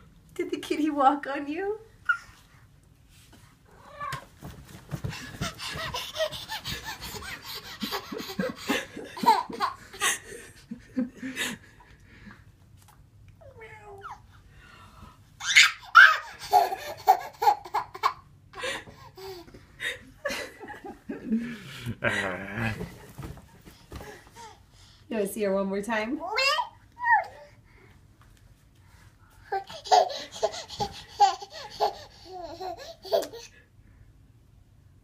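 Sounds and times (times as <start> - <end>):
baby laughing: 5.1 - 10.3, 15.4 - 18.3, 29.5 - 33.6.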